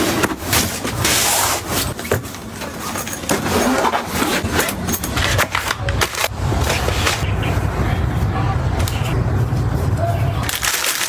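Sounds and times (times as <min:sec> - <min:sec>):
objects clicking and rustling: 0:00.0 - 0:07.2.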